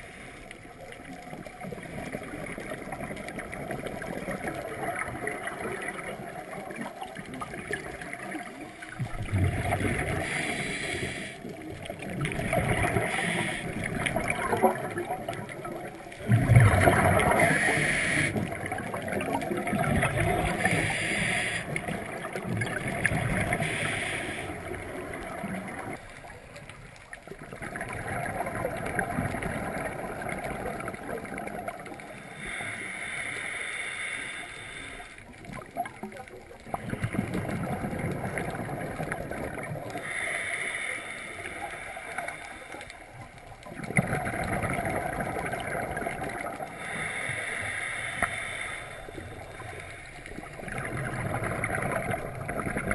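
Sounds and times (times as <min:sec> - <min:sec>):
exhaled bubbles gurgling: 0:00.0 - 0:52.9
regulator hissing inhalations: 0:10.2 - 0:11.5, 0:13.0 - 0:13.8, 0:17.4 - 0:18.4, 0:20.5 - 0:21.8, 0:23.5 - 0:24.7, 0:32.2 - 0:35.2, 0:40.0 - 0:42.9, 0:46.7 - 0:50.2.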